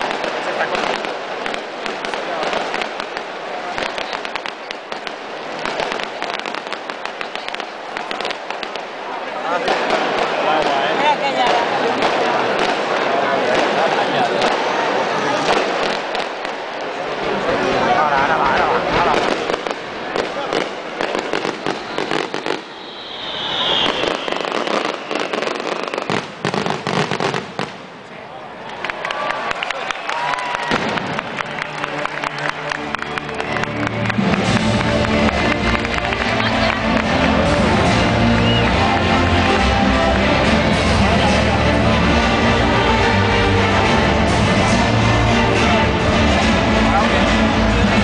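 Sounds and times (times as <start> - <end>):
whistling firework: 0.0 - 8.9, 19.0 - 27.8, 38.4 - 38.9
fireworks crackling: 0.0 - 28.2, 30.3 - 48.0.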